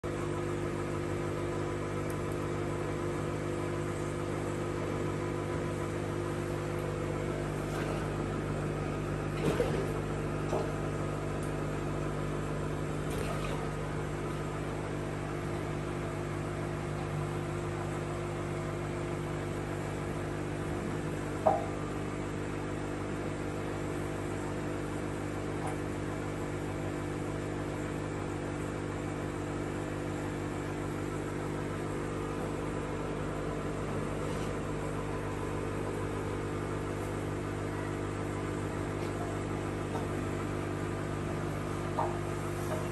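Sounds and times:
aquarium air pump hum: 0.0 - 42.9
brief clicks or splashes: 9.3 - 10.7, 13.0 - 13.8.

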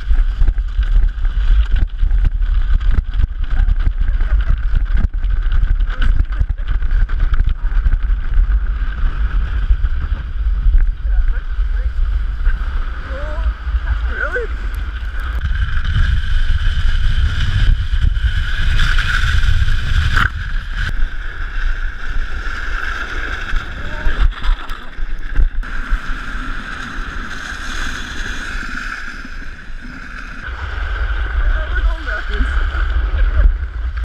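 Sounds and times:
wind buffeting microphone: 0.0 - 26.1
heavy low rumble: 0.0 - 34.0
toboggan scraping over icy snow: 0.0 - 34.0.

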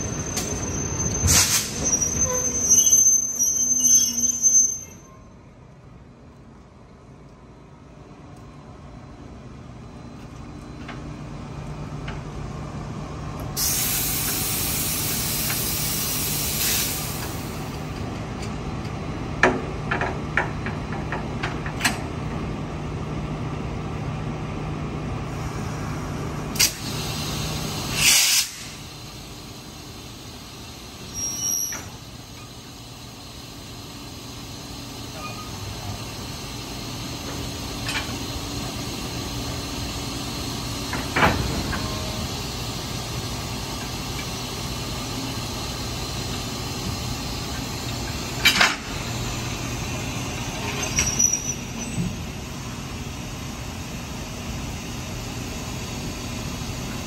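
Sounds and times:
locomotive low hum: 0.0 - 57.0
loud blast of air: 1.2 - 1.9, 13.6 - 17.7, 26.6 - 29.2
compressed air hissing: 13.6 - 17.7, 26.6 - 29.3.

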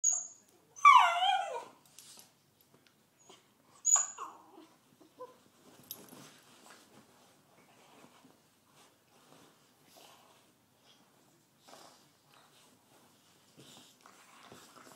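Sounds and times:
puppy whining: 0.0 - 1.8, 3.2 - 5.4.

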